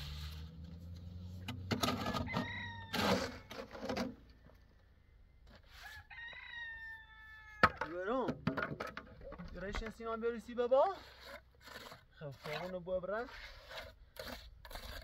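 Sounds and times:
shovel scraping stony soil: 0.0 - 4.3, 10.8 - 15.0
rooster crowing: 1.9 - 3.5, 5.8 - 7.8.

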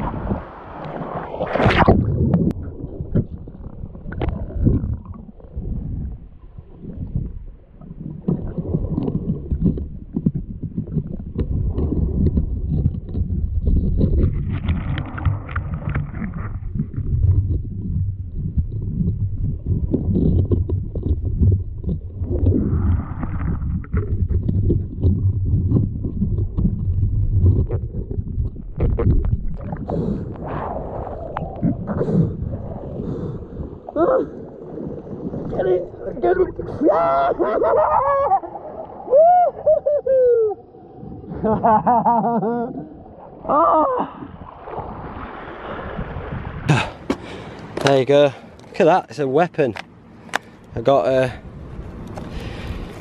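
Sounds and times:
sharp splash: 0.0 - 2.5, 44.4 - 47.5
muffled underwater sloshing: 0.0 - 53.0.

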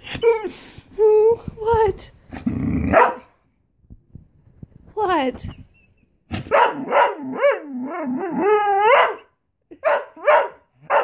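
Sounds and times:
dog yowling and barking: 2.9 - 3.3, 6.5 - 11.0.

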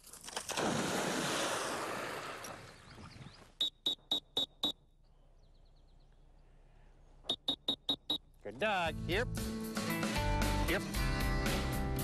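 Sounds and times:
training whistle toots: 3.6 - 4.8, 7.3 - 8.3.

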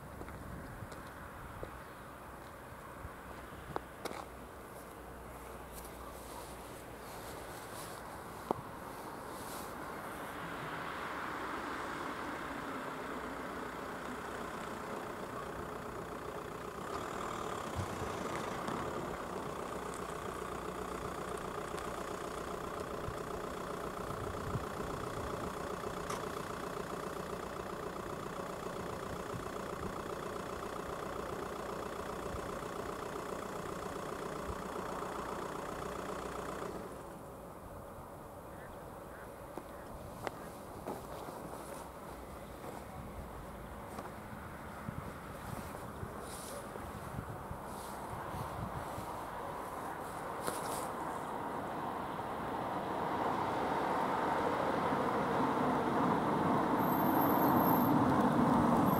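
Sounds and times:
engine idling: 0.0 - 58.9.

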